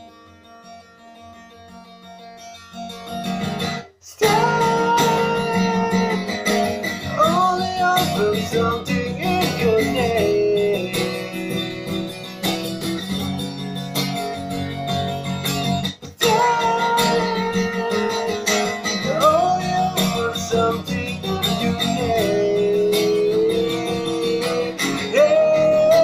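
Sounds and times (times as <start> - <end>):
guitar strumming: 0.0 - 26.0
man singing: 4.0 - 12.4, 16.0 - 26.0.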